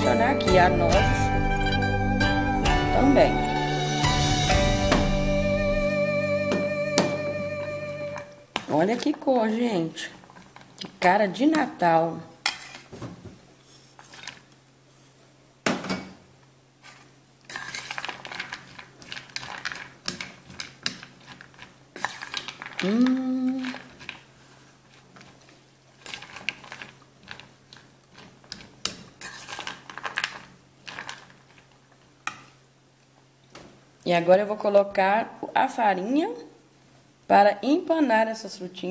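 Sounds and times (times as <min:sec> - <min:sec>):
person humming: 0:00.0 - 0:08.4, 0:22.8 - 0:23.7.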